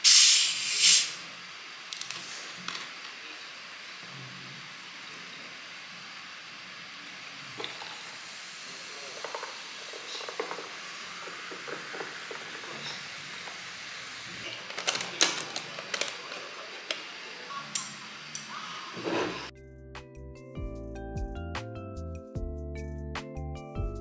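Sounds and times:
drink fizzing: 4.8s - 17.8s
cola pouring over ice: 7.0s - 16.4s.

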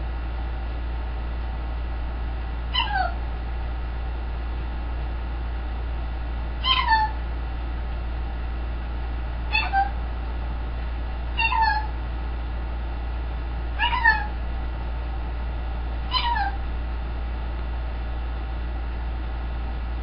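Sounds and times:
steady low hum: 0.0s - 20.0s
macaw calls: 6.6s - 7.2s, 11.4s - 11.9s, 13.8s - 14.3s, 16.1s - 16.6s.

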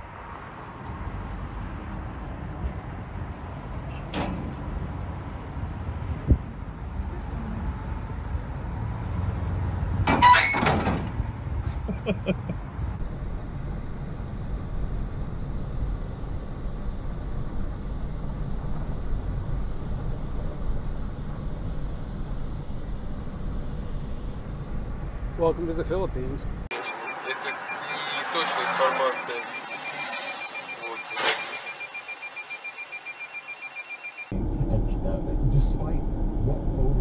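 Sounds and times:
low vehicle rumble: 0.0s - 26.7s
car engine and road noise: 0.0s - 34.6s
sudden loud harsh burst: 26.8s - 33.3s.

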